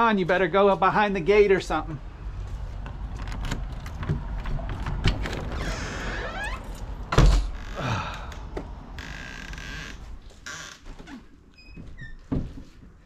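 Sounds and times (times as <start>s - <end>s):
door latch clicks and rattles: 3.2s - 5.8s
door opening thunk: 3.2s - 7.8s
door squeaks: 5.1s - 7.8s, 9.0s - 12.4s.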